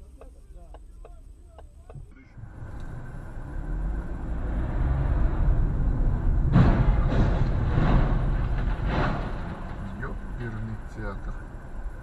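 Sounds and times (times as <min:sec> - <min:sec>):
car engine and road rumble: 0:00.0 - 0:12.0
car rolling over crash: 0:05.3 - 0:11.2.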